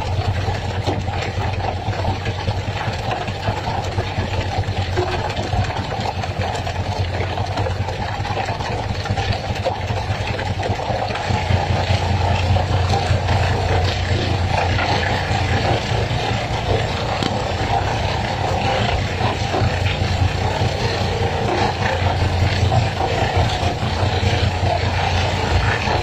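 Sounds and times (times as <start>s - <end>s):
boat engine humming: 0.0s - 26.0s
water splashing: 0.0s - 26.0s
fish knocking on wooden deck: 14.0s - 20.1s.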